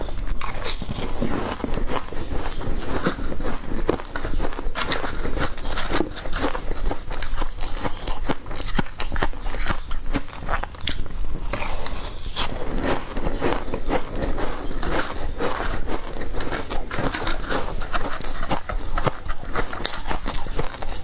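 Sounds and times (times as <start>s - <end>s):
crunching and chewing ice: 0.0s - 21.0s.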